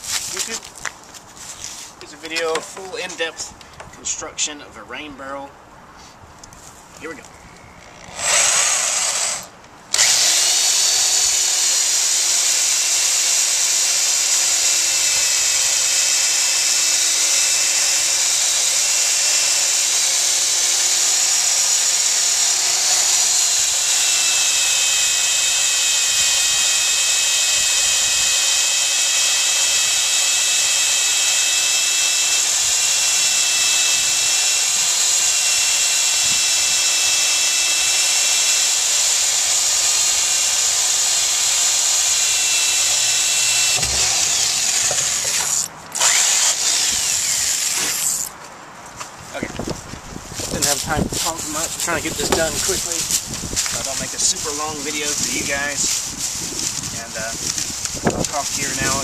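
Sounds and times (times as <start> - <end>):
electric drill boring into plastic: 7.8 - 48.3.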